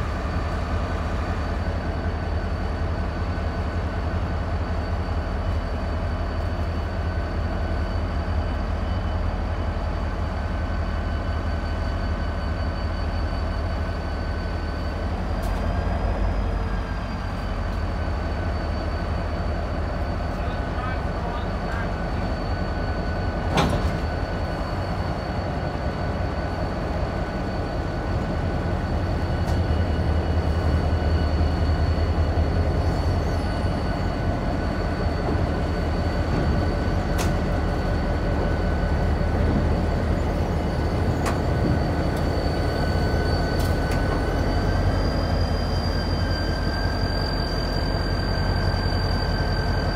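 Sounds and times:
locomotive engine drone: 0:00.0 - 0:49.9.

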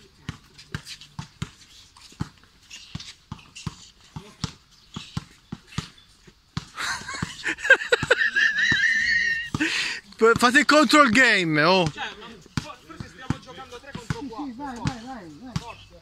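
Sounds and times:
man shouting: 0:10.2 - 0:11.9
basketball dribbling on hard court: 0:11.8 - 0:15.8.

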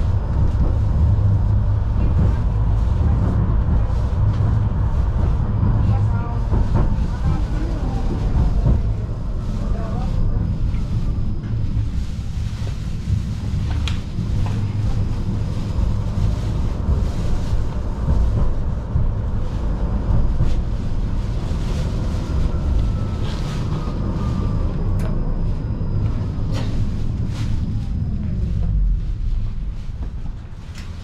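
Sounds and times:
tram wheels rumbling: 0:00.0 - 0:31.0
faint falling whine: 0:22.3 - 0:30.5.

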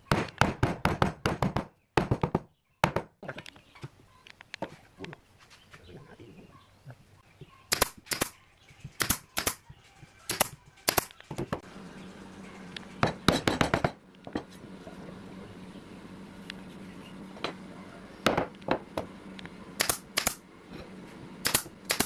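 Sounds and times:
steady low hum: 0:03.4 - 0:22.0.

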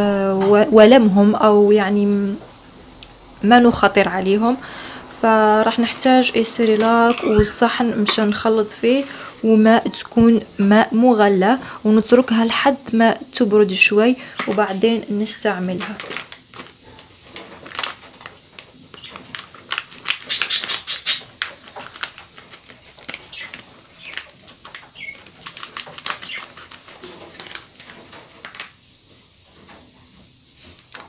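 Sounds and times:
plastic foil sachet crinkling: 0:13.8 - 0:29.0.

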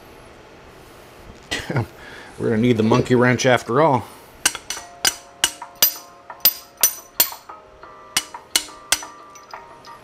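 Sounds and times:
sharp clinking strikes: 0:04.5 - 0:07.5, 0:08.2 - 0:10.0.

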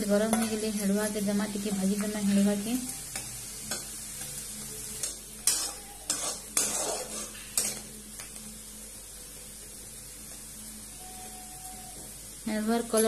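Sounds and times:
frying in hot oil sizzling: 0:00.0 - 0:13.0
metal spatula scraping pan: 0:05.0 - 0:07.8.

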